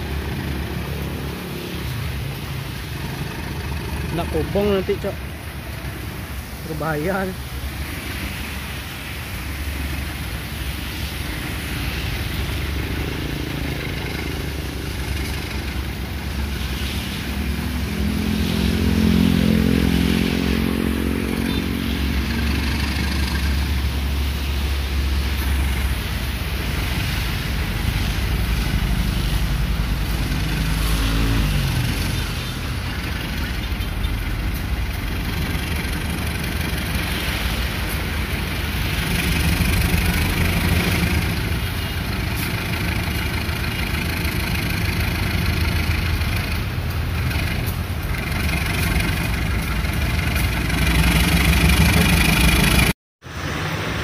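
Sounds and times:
locomotive engine working hard: 25.0 - 52.9.

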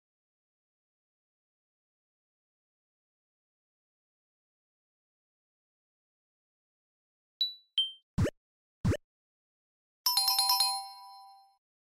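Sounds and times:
bell-like chimes: 10.1 - 11.6.

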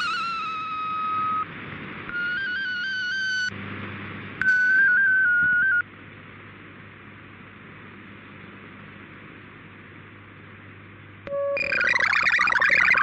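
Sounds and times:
faint digital data hiss: 0.0 - 1.5, 11.6 - 13.0
radio static: 11.6 - 13.0.

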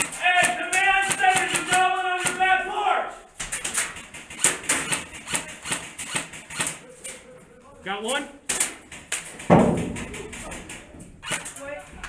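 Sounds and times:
airsoft gunfire: 0.0 - 2.6, 3.5 - 6.8, 11.2 - 11.6.

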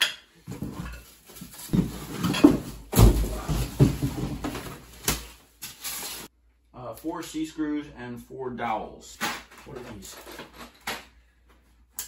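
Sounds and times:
plastic wrapping rustling: 0.5 - 6.3.

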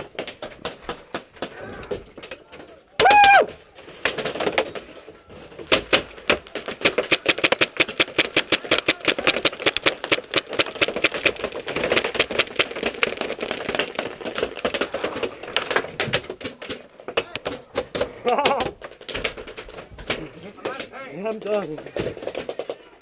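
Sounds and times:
paintballs breaking on impact: 0.0 - 23.0
paintball markers popping: 5.7 - 22.9.

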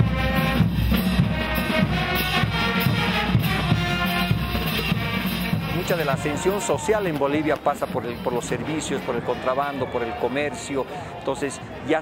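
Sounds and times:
bass drum beats: 0.0 - 8.8
held brass notes: 0.0 - 10.2.

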